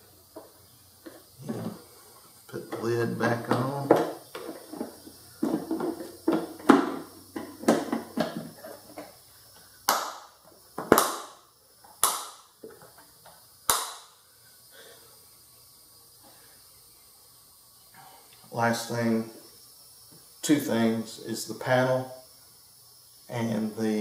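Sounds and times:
plastic lid knocking and rattling: 0:03.5 - 0:09.0.

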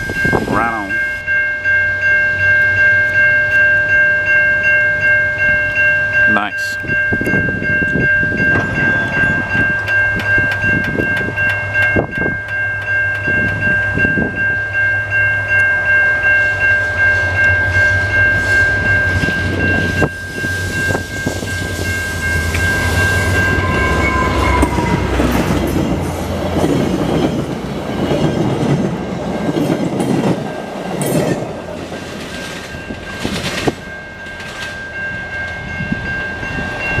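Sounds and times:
diesel locomotive engine drone: 0:00.0 - 0:37.0
level-crossing bell ringing: 0:00.0 - 0:37.0
train horn: 0:22.4 - 0:25.6
train wheels clicking over rail joints: 0:24.7 - 0:36.0.

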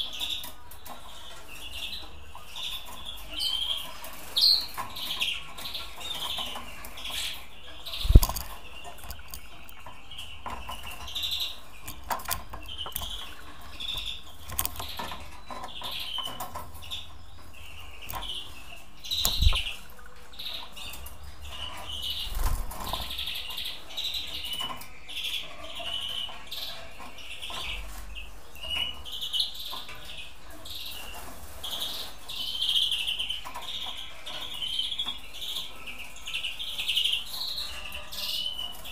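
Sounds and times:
finches chirping: 0:00.0 - 0:38.9
wing flutters: 0:08.0 - 0:09.2, 0:19.2 - 0:19.8.

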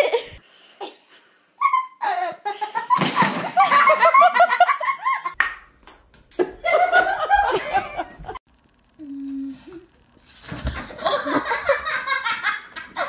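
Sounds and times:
person laughing hard: 0:06.4 - 0:08.4.

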